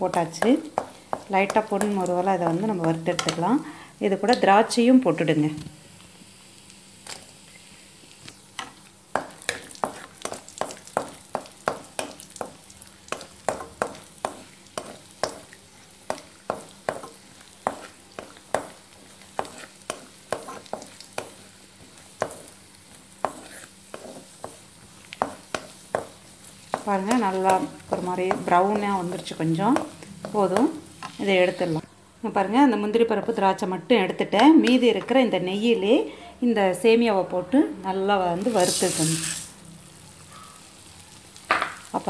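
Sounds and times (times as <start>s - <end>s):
faint sizzle: 0.0s - 37.0s, 37.9s - 42.0s
wooden spatula scraping a pan: 9.2s - 12.6s, 16.1s - 22.6s, 23.2s - 31.8s.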